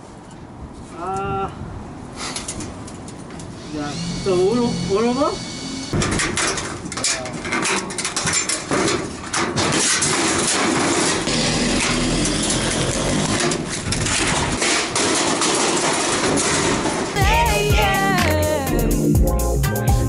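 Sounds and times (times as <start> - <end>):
sheet metal clanking and rattling: 5.9 - 17.2.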